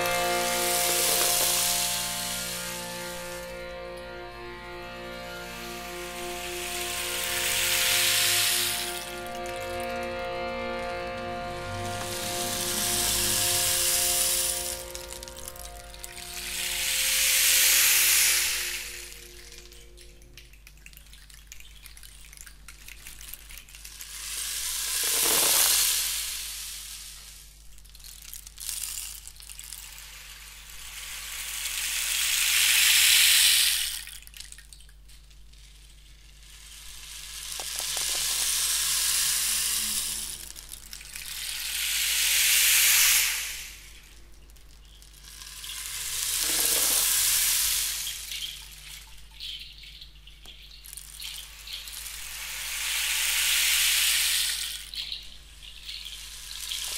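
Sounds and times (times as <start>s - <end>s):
gong wash: 0.0s - 20.5s.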